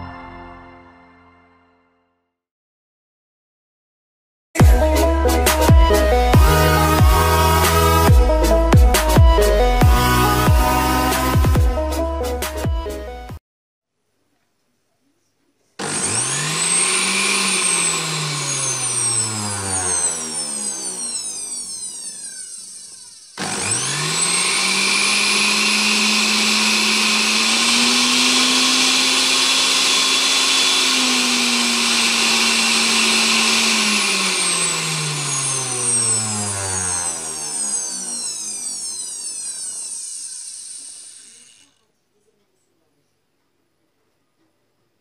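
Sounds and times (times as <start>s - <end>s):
juicer motor whining: 4.6s - 11.6s, 15.8s - 41.8s.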